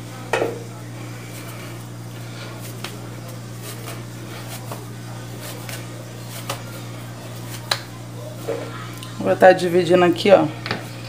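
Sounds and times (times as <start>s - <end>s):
steady low hum: 0.0s - 11.0s
dough kneaded on stone: 0.6s - 8.7s.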